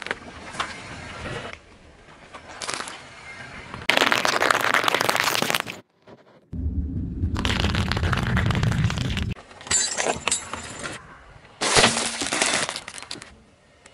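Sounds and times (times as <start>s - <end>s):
tyre rolling with low rumble: 6.6s - 9.4s
plastic item cracking: 7.3s - 9.4s.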